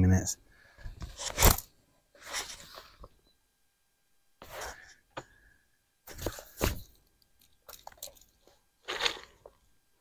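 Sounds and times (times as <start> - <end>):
handling rustles and knocks: 6.0 - 8.5.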